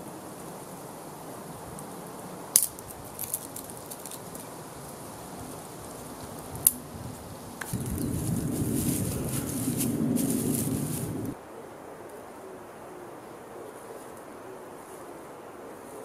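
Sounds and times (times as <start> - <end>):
faint outdoor hiss: 0.0 - 16.0
twigs snapping: 2.5 - 4.6.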